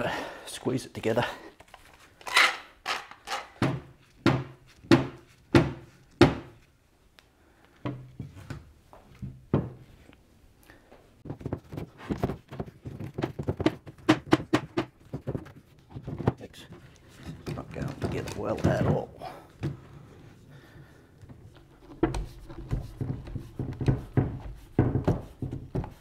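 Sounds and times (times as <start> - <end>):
metal clamps clicking and rattling: 2.2 - 3.6
wooden frame being knocked together: 11.2 - 16.6, 17.4 - 19.1.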